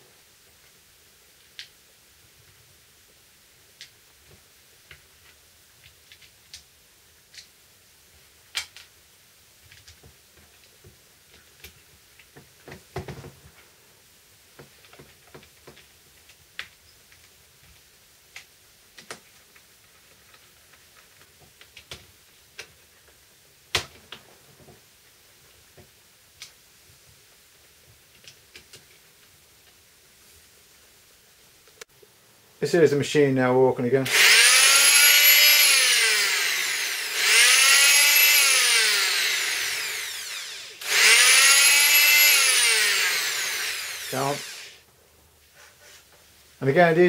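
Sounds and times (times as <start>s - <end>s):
screwdriver working on screws: 34.1s - 44.8s.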